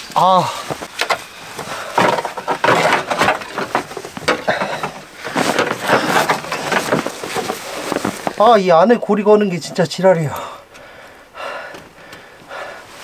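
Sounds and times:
snow crunching: 0:00.0 - 0:10.4
snow chain clinking and rattling: 0:00.7 - 0:10.5.

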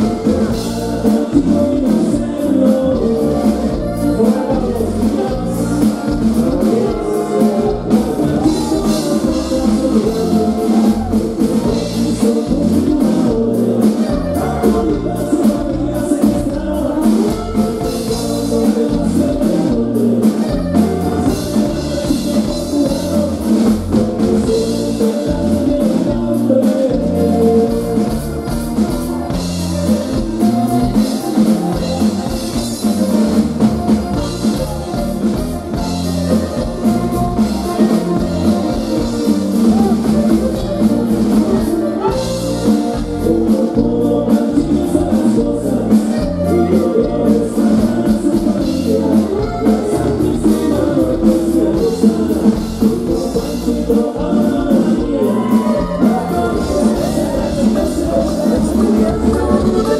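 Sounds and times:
drum kit beat: 0:00.0 - 0:59.9
saxophone section: 0:27.1 - 0:44.2, 0:55.0 - 0:59.9.

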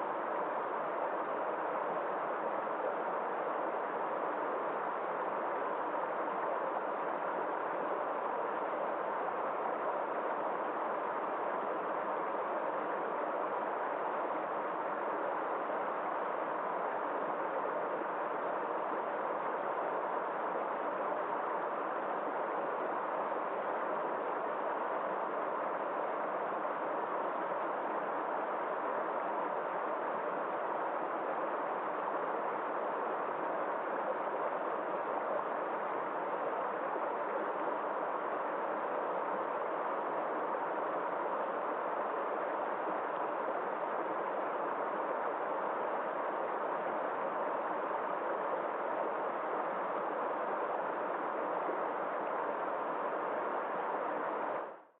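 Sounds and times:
stream rushing over rocks: 0:00.1 - 0:54.6.

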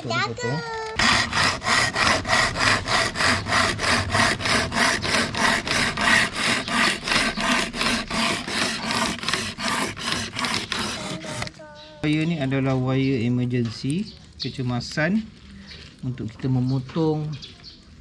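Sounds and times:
wire saw rasping through plastic pipe: 0:00.9 - 0:11.6.

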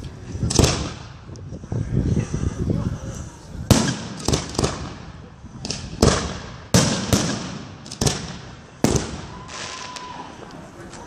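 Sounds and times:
fireworks bangs echoing: 0:00.5 - 0:01.2, 0:03.7 - 0:10.3.

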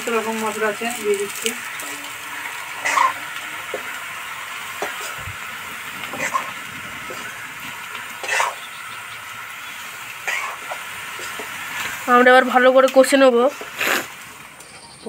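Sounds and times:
vegetables sizzling in oil: 0:00.0 - 0:15.0
metal spatula scraping pan: 0:00.8 - 0:05.2.

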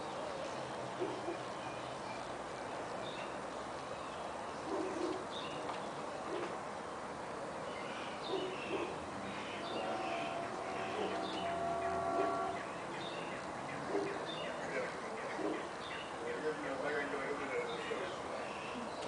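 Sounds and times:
faint steady hum: 0:00.0 - 0:13.9
bird chirps: 0:07.9 - 0:16.2.

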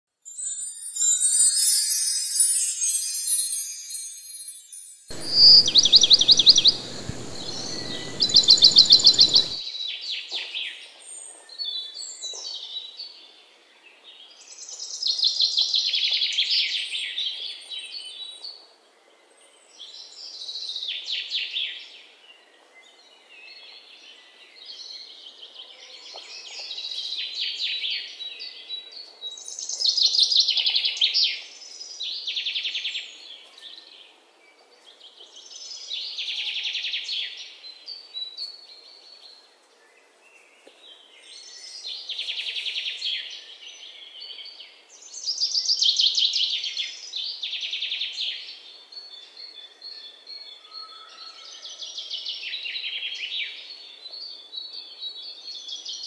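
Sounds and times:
songbirds chirping and trilling: 0:05.1 - 0:09.6
steady rushing noise: 0:05.1 - 0:09.6.

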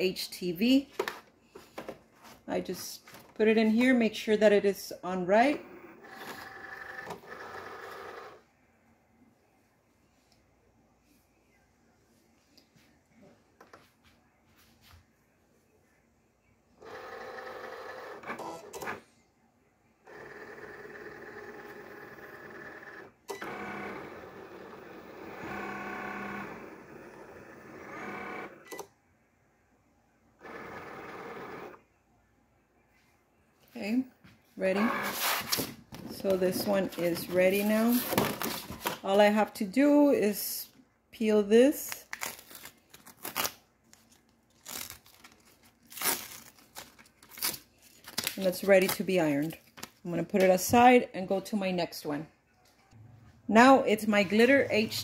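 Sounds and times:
vinyl peeling and ripping: 0:41.9 - 0:50.0.

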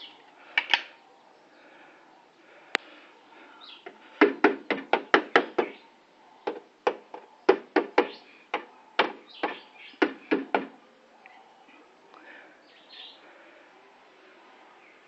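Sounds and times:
sharp knocks: 0:04.2 - 0:05.8, 0:06.4 - 0:10.7.

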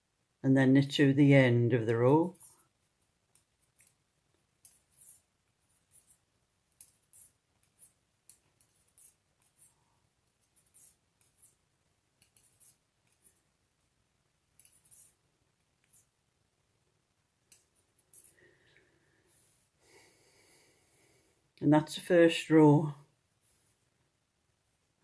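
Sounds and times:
knitting needles clicking: 0:01.9 - 0:11.6, 0:12.2 - 0:13.5, 0:14.5 - 0:16.1, 0:17.4 - 0:18.8.

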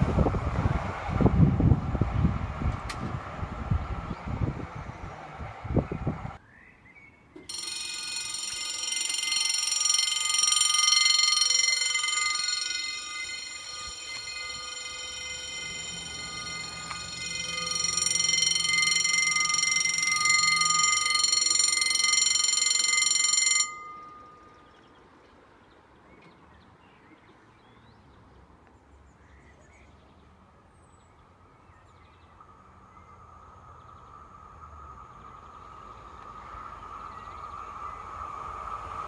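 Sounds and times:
electric train hum: 0:00.0 - 0:06.4, 0:07.4 - 0:25.5, 0:32.3 - 0:39.0
level-crossing warning bell ringing: 0:07.5 - 0:25.0.

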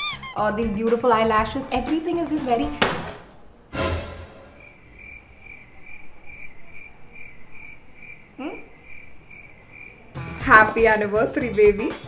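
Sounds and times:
cricket chirping: 0:04.6 - 0:10.2.

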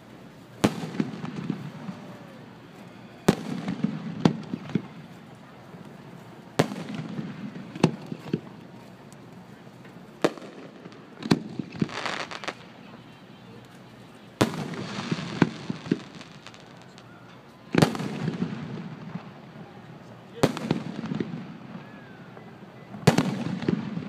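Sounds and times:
smaller firework pops: 0:00.6 - 0:02.3, 0:03.3 - 0:05.1, 0:05.8 - 0:12.8, 0:14.4 - 0:17.1, 0:17.7 - 0:19.4, 0:20.4 - 0:24.0.

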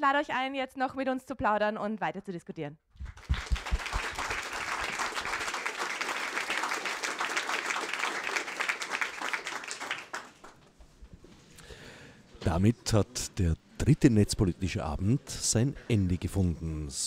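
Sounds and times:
audience applauding: 0:03.0 - 0:10.6.

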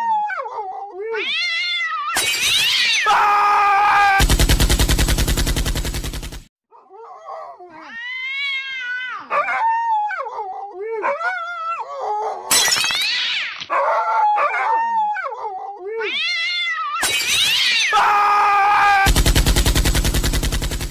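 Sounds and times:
animal yowls: 0:00.0 - 0:04.2, 0:06.8 - 0:19.1
fast even rattle: 0:04.2 - 0:06.5, 0:19.1 - 0:20.9
harsh noisy bursts: 0:04.2 - 0:06.5, 0:18.8 - 0:20.9.

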